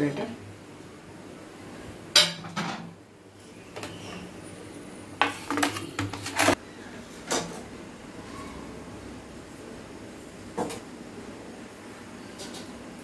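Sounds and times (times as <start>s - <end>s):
cookware and utensils clattering: 2.2s - 3.0s, 5.2s - 6.6s.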